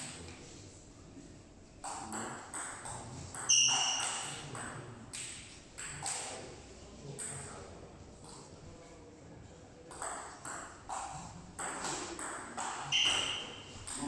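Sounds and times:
short high squeak: 3.5 - 4.3, 12.9 - 13.7.

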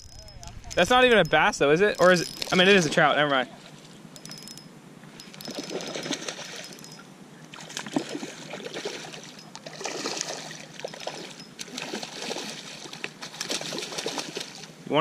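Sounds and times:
fish splashing at water surface: 7.5 - 14.7.

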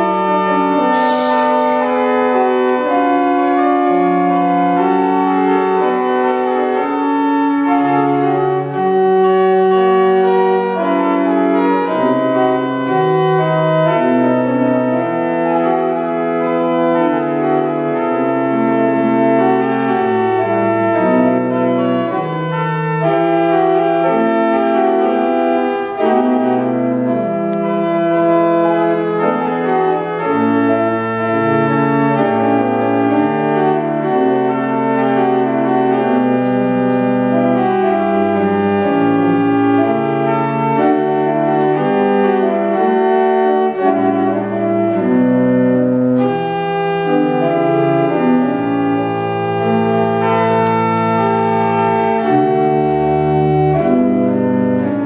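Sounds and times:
pipe organ playing chords: 0.0 - 55.0.

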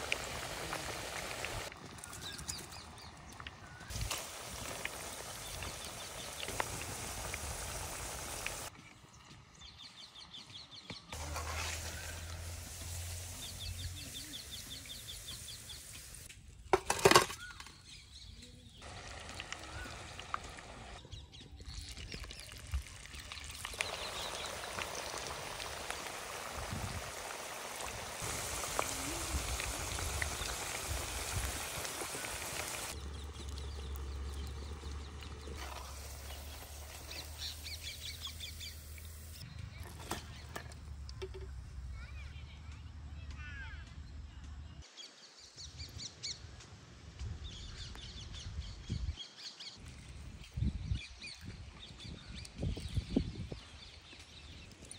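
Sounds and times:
deep-frying sizzle and bubbling: 0.0 - 8.7, 11.2 - 16.3, 18.8 - 21.0, 21.6 - 40.5
birds chirping: 0.0 - 16.3, 17.2 - 40.9.

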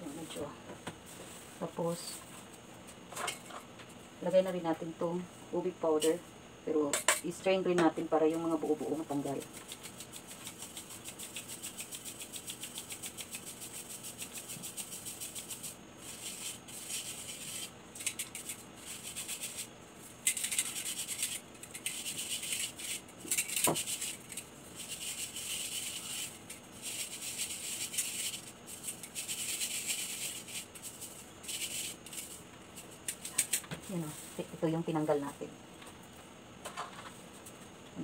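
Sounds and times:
powder shaken through strainer: 8.3 - 35.4
powder rubbed through mesh: 8.8 - 35.3.

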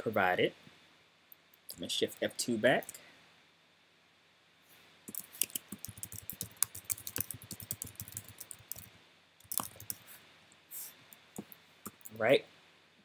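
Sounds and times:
computer keyboard typing: 5.1 - 10.0, 11.9 - 12.2.

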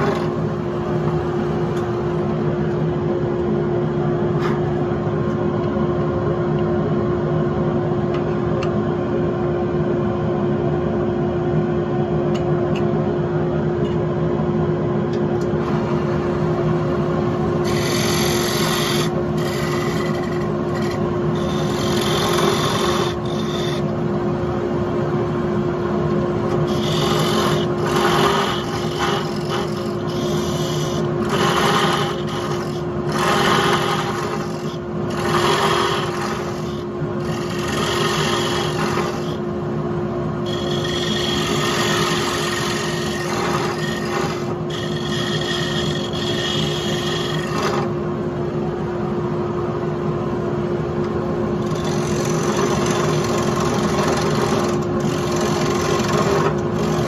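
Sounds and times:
turning tool scraping wood: 0.0 - 0.4, 17.6 - 24.0, 26.5 - 39.4, 40.5 - 47.9, 51.6 - 57.0
lathe motor humming: 15.4 - 24.5, 26.0 - 39.5, 40.4 - 48.0, 51.6 - 57.0
abrasive pad rubbing wood: 17.6 - 23.9, 26.6 - 39.4.

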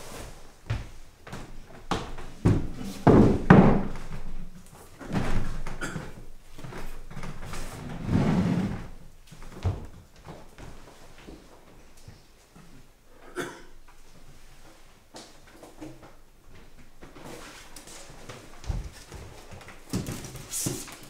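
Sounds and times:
furniture scraping: 7.3 - 9.0.

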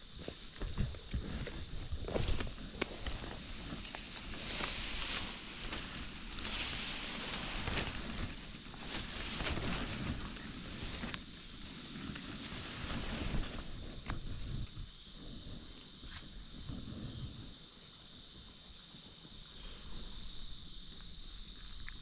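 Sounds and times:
rustling in undergrowth: 0.0 - 17.2
wind buffeting microphone: 0.1 - 17.6.

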